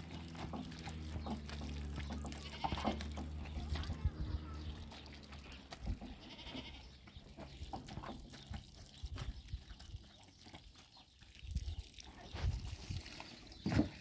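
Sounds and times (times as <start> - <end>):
trickling garden hose: 0.0 - 14.0
goat bleating: 2.0 - 4.8, 5.4 - 7.0.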